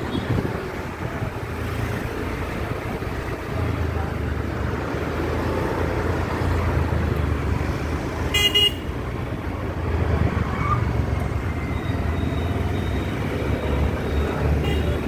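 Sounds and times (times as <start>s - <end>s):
street traffic rumbling: 0.0s - 15.0s
vehicle horn toot: 8.3s - 8.9s.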